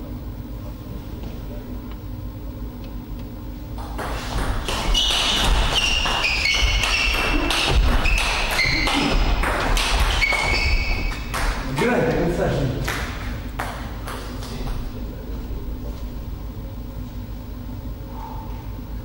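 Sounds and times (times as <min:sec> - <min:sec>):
shoes squeaking on sports floor: 0:03.8 - 0:11.7.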